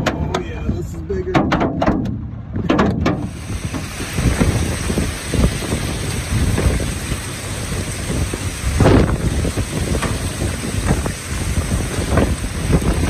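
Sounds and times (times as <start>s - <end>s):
wind buffeting microphone: 0.0s - 13.0s
heavy rain: 3.2s - 13.0s.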